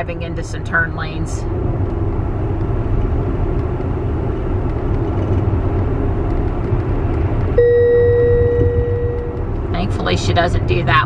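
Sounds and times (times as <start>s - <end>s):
tyre and road noise in cabin: 0.0s - 11.0s
steady tone: 7.6s - 10.7s.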